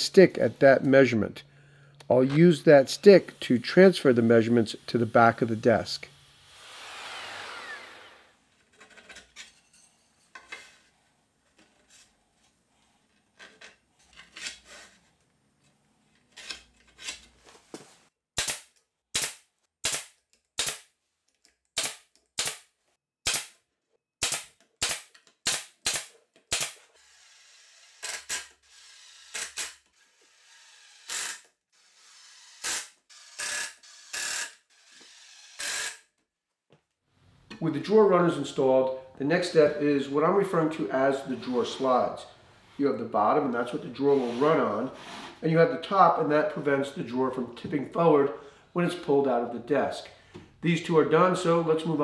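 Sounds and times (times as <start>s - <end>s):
cordless drill driving screws: 6.5s - 8.4s, 26.5s - 36.0s
handling and scraping: 8.4s - 18.1s, 41.1s - 42.9s, 43.6s - 45.6s
nail gun firing: 18.4s - 20.9s, 21.8s - 23.6s, 24.2s - 26.9s.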